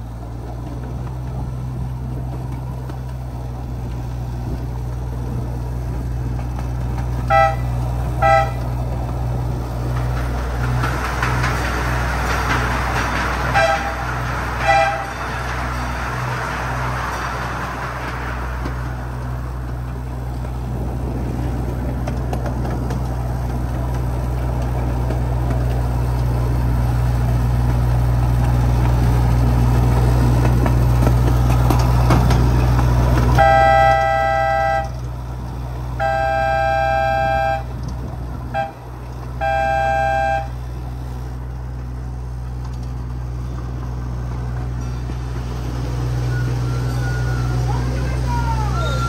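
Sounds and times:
miniature train running: 0:00.0 - 0:49.0
train horn: 0:07.2 - 0:08.8, 0:13.4 - 0:15.7, 0:33.3 - 0:35.0, 0:36.0 - 0:37.8, 0:38.5 - 0:38.8, 0:39.4 - 0:40.6.

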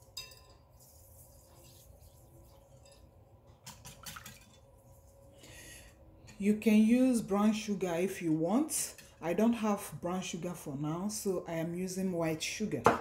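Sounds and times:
whisk stirring in glass bowl: 0:00.0 - 0:05.2.

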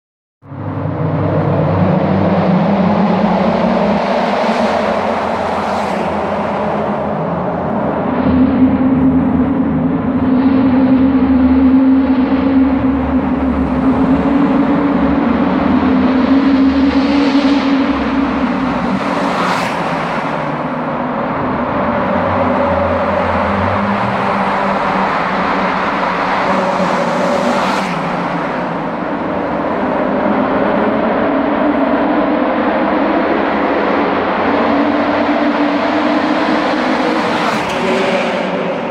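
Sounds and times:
car engines running hard in tunnel: 0:00.4 - 0:38.9.

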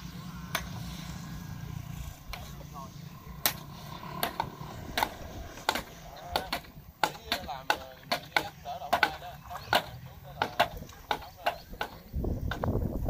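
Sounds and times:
quiet voices: 0:00.0 - 0:12.6
wooden stakes being pounded: 0:03.4 - 0:12.8.

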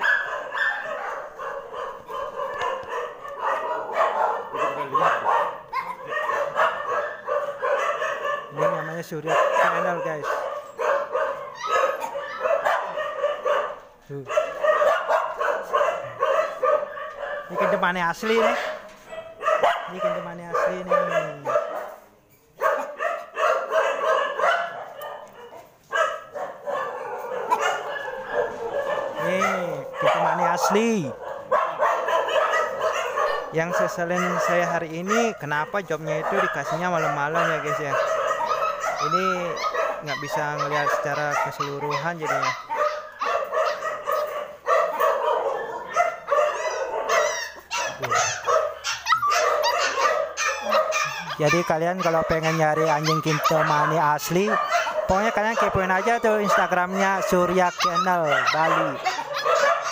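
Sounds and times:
dogs barking and yelping: 0:00.0 - 0:59.9.

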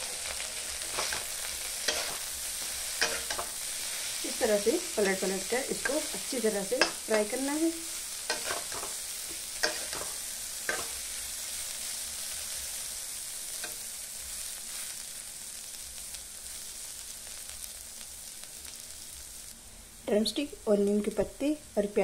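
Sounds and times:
meat and onions sizzling in pan: 0:00.0 - 0:22.0
metal spatula scraping pan: 0:00.8 - 0:03.6, 0:08.3 - 0:11.0.

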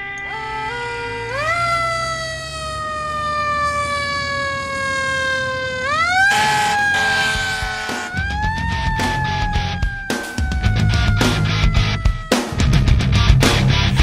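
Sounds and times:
fire engine siren wailing: 0:00.0 - 0:13.0
heavy music with rhythmic hits: 0:06.8 - 0:14.0.

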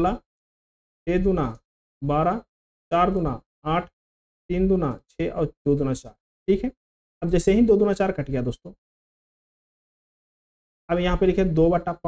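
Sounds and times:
man speaking: 0:01.1 - 0:03.9, 0:04.5 - 0:08.8, 0:10.9 - 0:12.0.

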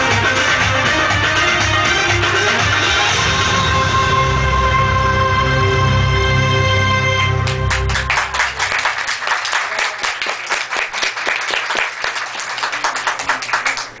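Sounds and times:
belly-dance music: 0:00.0 - 0:08.9
audience applauding: 0:07.4 - 0:14.0.

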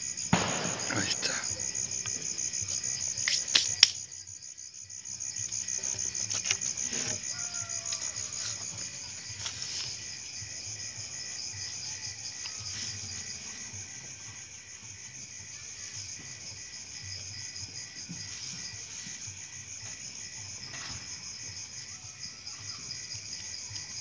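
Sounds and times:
night insects trilling: 0:00.0 - 0:24.0.

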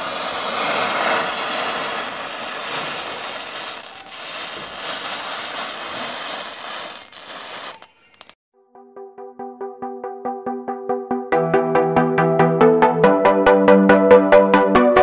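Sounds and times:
match heads burning with fizzing hiss: 0:00.0 - 0:08.4.

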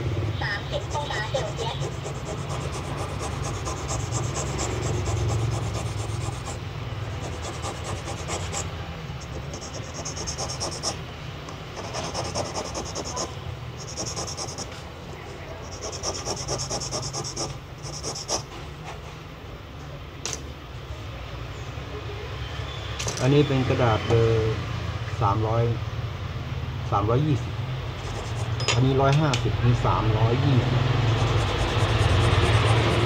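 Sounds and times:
steady low hum: 0:00.0 - 0:18.6, 0:25.7 - 0:33.0
sandpaper scratching on plastic: 0:00.7 - 0:06.6, 0:07.2 - 0:08.6, 0:09.3 - 0:11.0, 0:11.8 - 0:14.7, 0:15.7 - 0:18.4, 0:28.0 - 0:28.6, 0:31.0 - 0:33.0.

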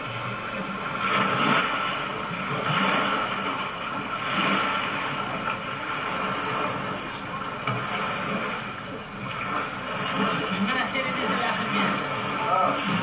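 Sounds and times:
waves lapping on pebbles: 0:00.0 - 0:13.0.

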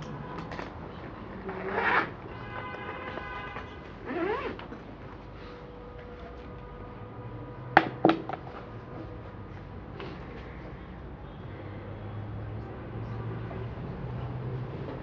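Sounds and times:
sharp knocks: 0:07.8 - 0:08.4.

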